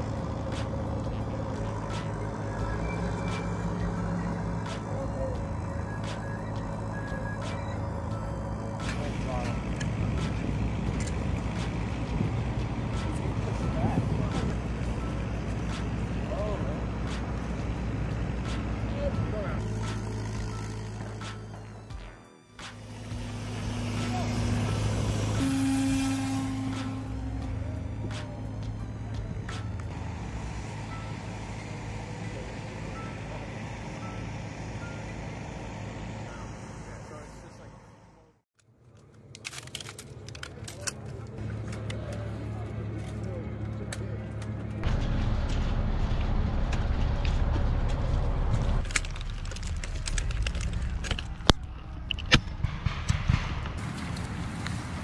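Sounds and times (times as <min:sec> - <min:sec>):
low rumble: 0:44.8 - 0:55.0
footsteps in leaf litter: 0:53.8 - 0:55.0.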